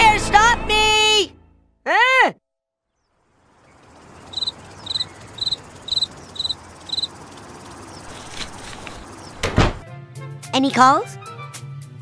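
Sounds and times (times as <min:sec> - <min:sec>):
outdoor ambience hiss: 0:02.9 - 0:09.8
cricket chirping: 0:03.1 - 0:09.4.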